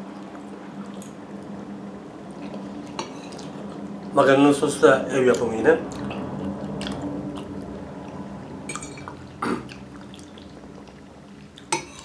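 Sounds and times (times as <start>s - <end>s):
faint low hum: 0.0s - 12.0s
wet chewing: 2.3s - 4.0s, 5.3s - 12.0s.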